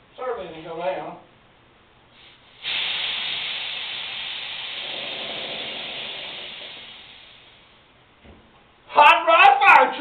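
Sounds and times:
compressed air hissing: 2.1s - 7.8s.

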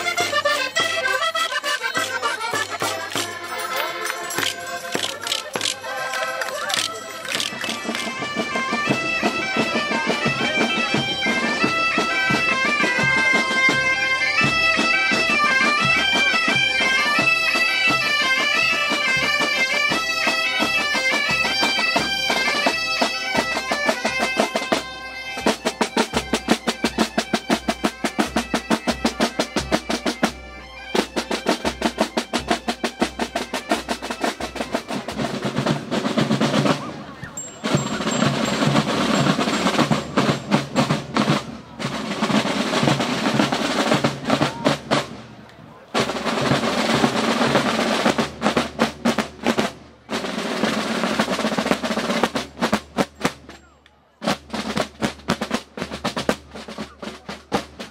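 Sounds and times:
bagpipes playing over drone: 0.0s - 35.1s
marching drums: 0.0s - 57.9s
snare drums: 0.0s - 57.9s.

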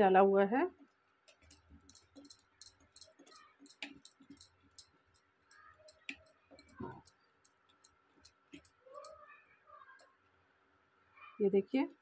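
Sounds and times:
whisk scraping steel bowl: 1.2s - 9.2s.

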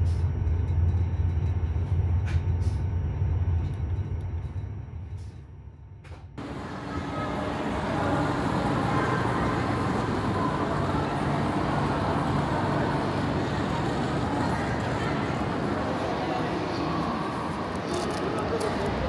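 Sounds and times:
station hall bustle: 0.0s - 19.0s
train humming at platform: 0.0s - 19.0s.

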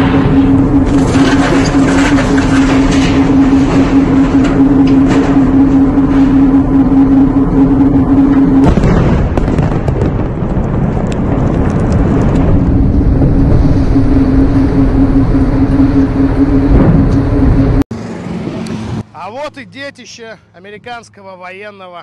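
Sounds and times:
rumbling with crackles: 0.0s - 17.8s
steady hum: 0.0s - 21.4s
large explosion: 8.5s - 17.8s.

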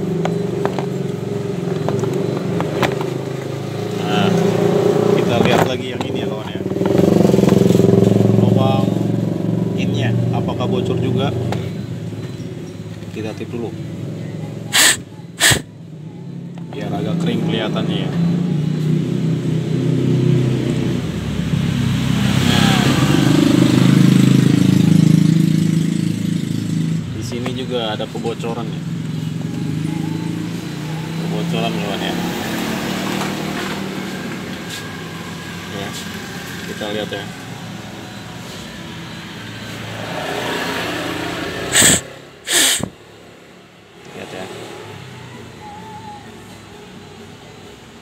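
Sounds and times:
engine running: 13.9s - 17.2s, 17.9s - 43.2s
loud hissing air blasts: 14.7s - 15.7s, 41.7s - 43.0s.

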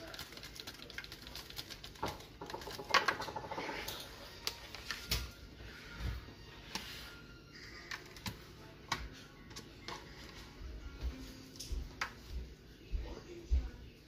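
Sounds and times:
packet crinkling: 0.0s - 3.1s
seasoning pattering onto foil: 0.0s - 3.7s.

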